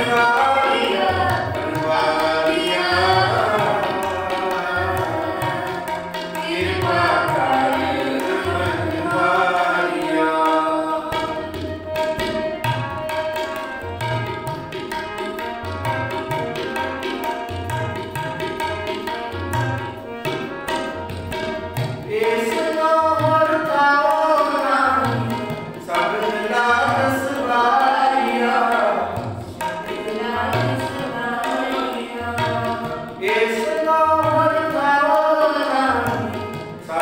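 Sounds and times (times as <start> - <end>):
voices singing: 0.0 - 11.6, 22.1 - 37.0
harmonium chords: 0.0 - 37.0
tabla rhythm: 0.0 - 37.0.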